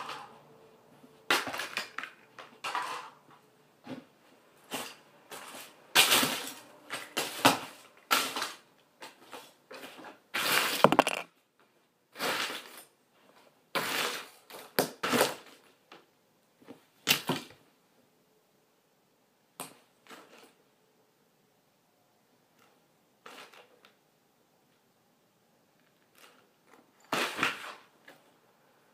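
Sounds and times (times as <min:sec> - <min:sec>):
plastic toys clattering and cracking: 0:01.3 - 0:03.4, 0:04.7 - 0:11.4, 0:12.2 - 0:12.9, 0:22.6 - 0:24.0, 0:25.8 - 0:28.4.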